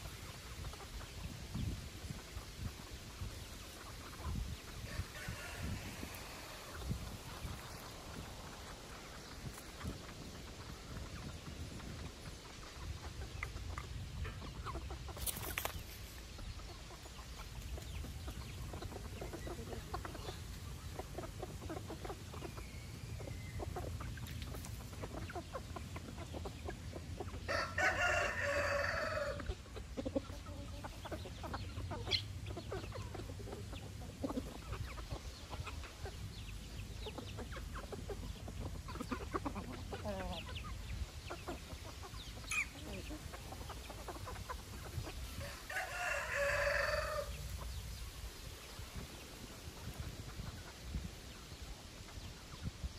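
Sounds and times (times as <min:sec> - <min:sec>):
chickens clucking: 0:00.0 - 0:52.9
rooster crowing: 0:04.9 - 0:06.6, 0:27.5 - 0:29.4, 0:45.4 - 0:47.4.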